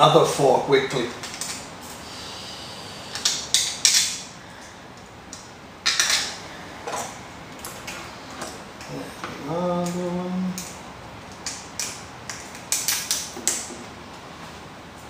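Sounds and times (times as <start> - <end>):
plastic parts clicking and clattering: 5.8 - 7.1.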